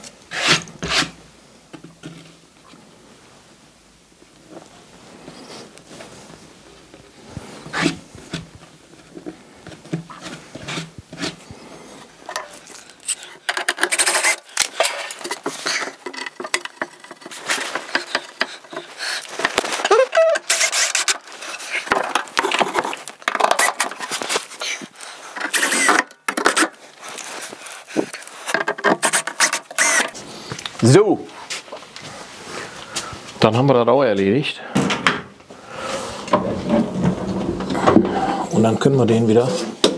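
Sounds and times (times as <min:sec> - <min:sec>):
wooden and plastic parts handled: 0:07.7 - 0:30.8.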